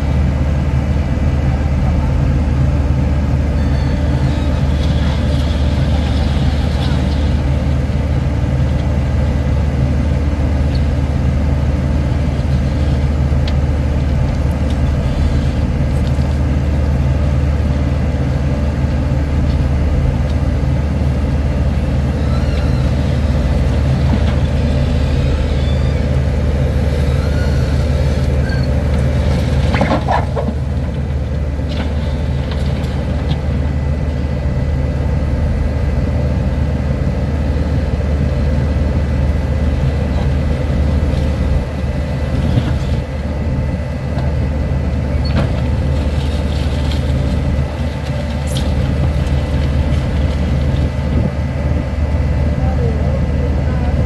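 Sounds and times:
heavy vehicle engine droning: 0.0 - 54.0
brief squeal: 3.6 - 5.2, 22.2 - 23.2, 25.1 - 26.2, 26.9 - 28.8.

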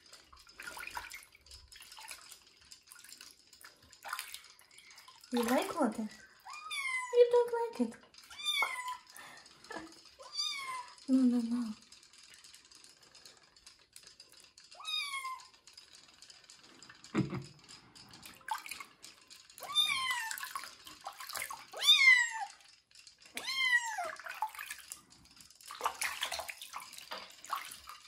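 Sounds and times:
water splashing: 0.0 - 6.2, 20.2 - 21.9, 25.7 - 28.0
kitten meowing: 6.5 - 7.2, 8.3 - 9.1, 10.2 - 10.9, 14.8 - 15.5, 19.6 - 20.4, 21.8 - 22.5, 23.4 - 24.1.

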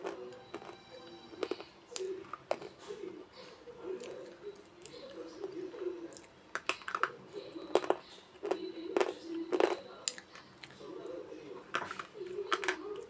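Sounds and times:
pencil cracking as chewed: 1.4 - 3.0, 4.0 - 10.8.

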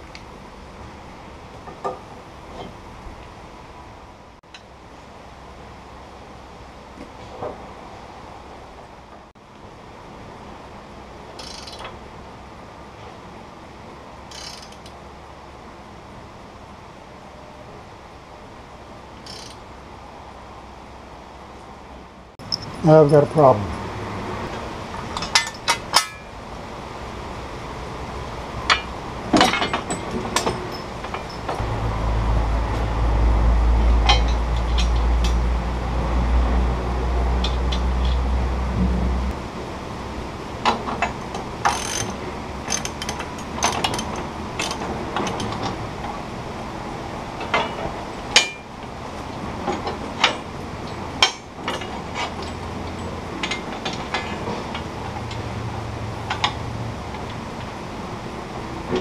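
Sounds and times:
ratchet wrench clicking: 11.4 - 11.9, 14.3 - 14.9, 19.2 - 19.6, 41.6 - 44.8
low rumble: 31.6 - 40.4.

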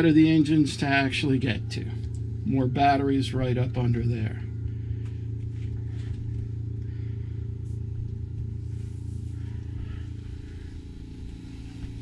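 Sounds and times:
low machinery drone: 0.0 - 12.0.

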